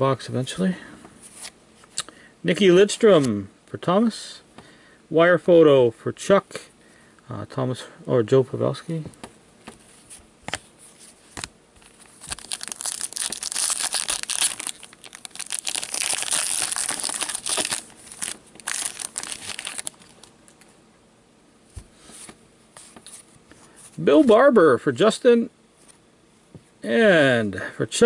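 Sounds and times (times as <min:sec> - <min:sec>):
foil wrapper crinkling: 0:11.8 - 0:20.3.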